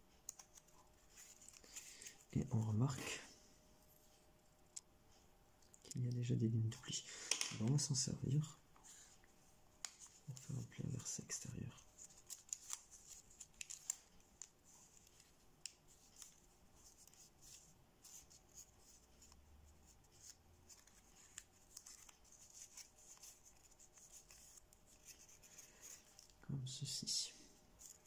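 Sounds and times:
paper crinkling and creasing: 0.2s - 3.2s, 9.8s - 27.1s, 27.7s - 28.0s.

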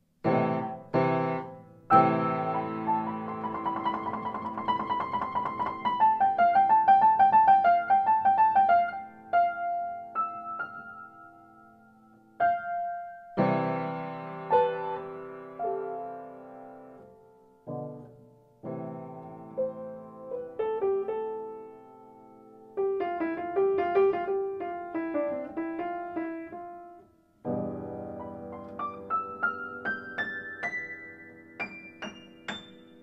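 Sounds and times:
solo piano music: 0.0s - 33.0s.

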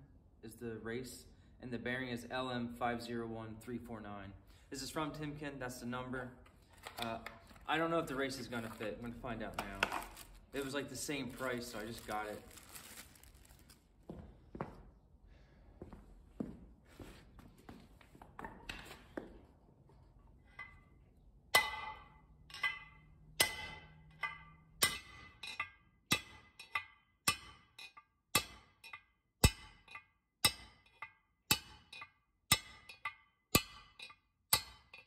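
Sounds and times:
hammer striking metal punch: 21.5s - 35.0s.

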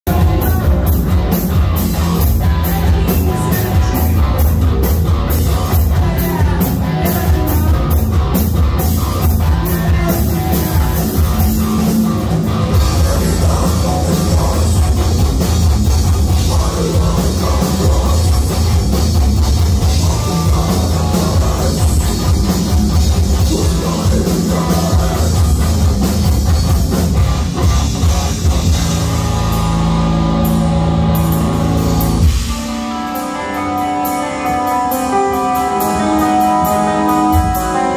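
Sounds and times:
vocals: 0.0s - 26.8s
heavy metal band playing: 0.0s - 37.9s.

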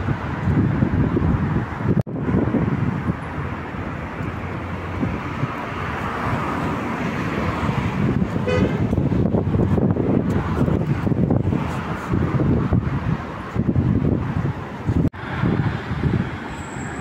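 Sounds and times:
road traffic rumbling: 0.0s - 17.0s
car horn toot: 8.4s - 8.9s.

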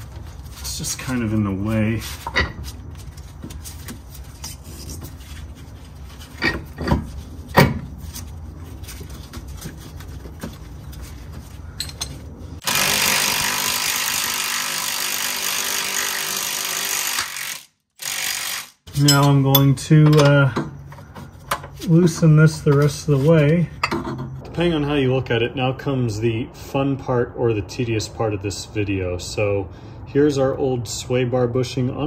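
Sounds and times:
metal tool clinks and knocks: 11.8s - 12.2s, 18.9s - 21.8s.

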